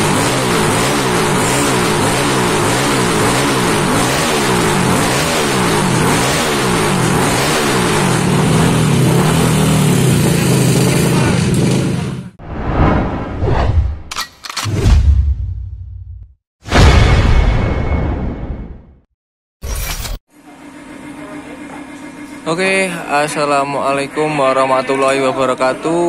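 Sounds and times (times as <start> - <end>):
scooter engine revving: 0.0 - 12.4.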